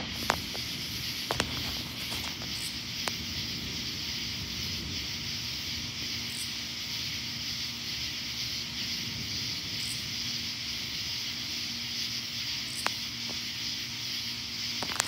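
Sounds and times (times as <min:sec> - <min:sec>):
night insects trilling: 0:00.0 - 0:15.0.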